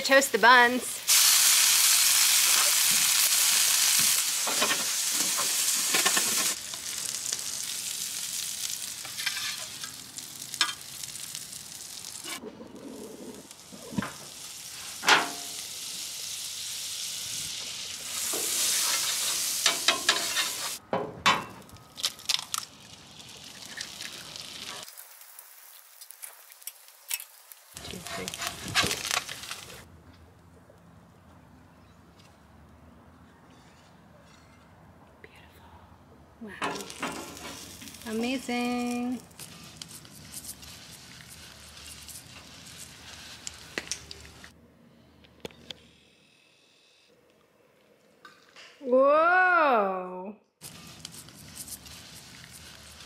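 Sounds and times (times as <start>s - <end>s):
food sizzling on griddle: 0.0s - 12.4s, 13.0s - 20.8s, 22.8s - 29.8s, 36.8s - 44.5s, 50.6s - 53.0s.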